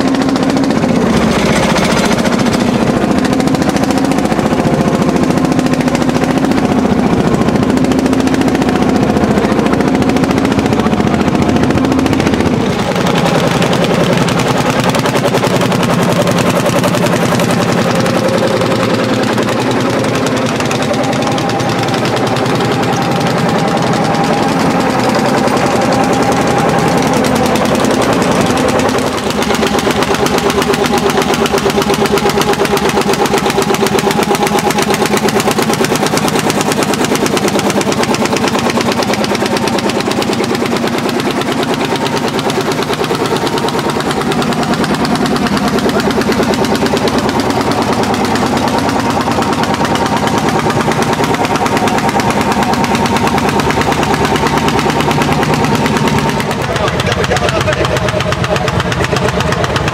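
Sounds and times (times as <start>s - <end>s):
single-cylinder engine exhaust beats: 0.0s - 59.9s.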